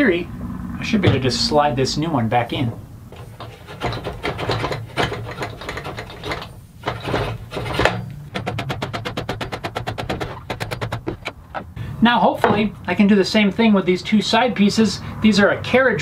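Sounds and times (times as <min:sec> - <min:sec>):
metal bar scraping through brackets: 0:02.6 - 0:11.8
clicks and knocks: 0:02.7 - 0:11.8.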